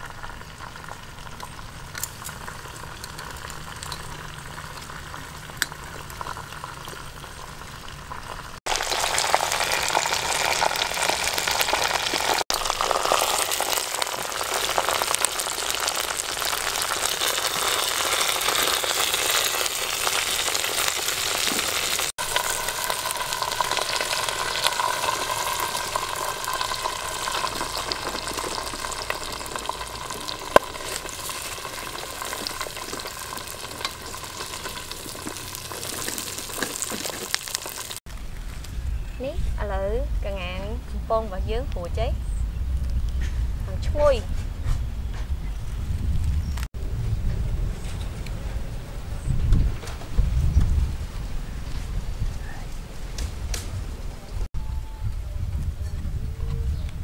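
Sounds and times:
chicken frying in hot oil: 0.0s - 38.5s.

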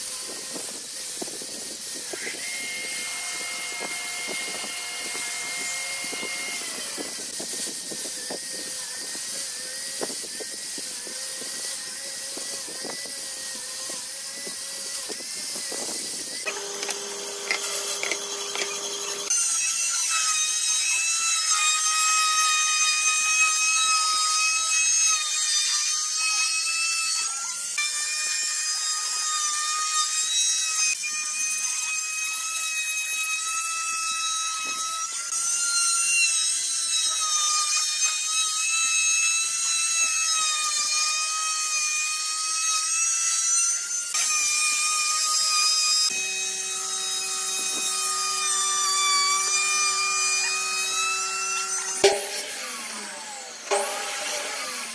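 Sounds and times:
router whining: 0.0s - 54.9s.

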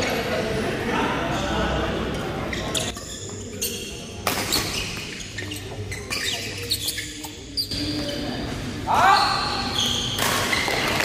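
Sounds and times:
shoe squeaks on court floor: 2.4s - 11.0s.

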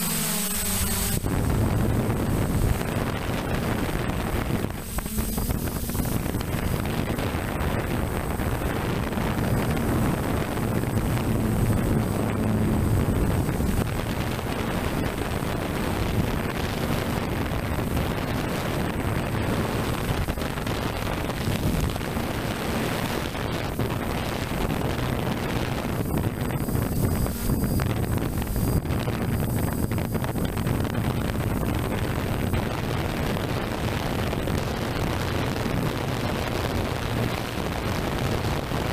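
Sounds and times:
drone motors humming: 0.0s - 38.9s
wind noise on microphone: 0.0s - 38.9s.

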